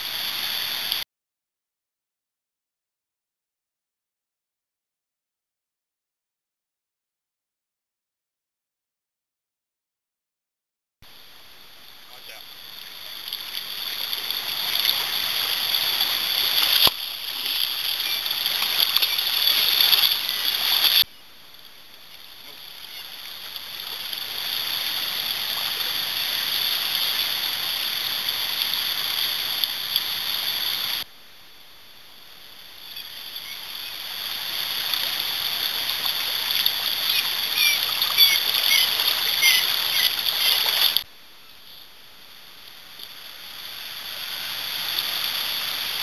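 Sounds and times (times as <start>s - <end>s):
river water rushing: 11.1s - 21.0s, 22.4s - 31.0s, 32.9s - 41.0s, 43.2s - 46.0s.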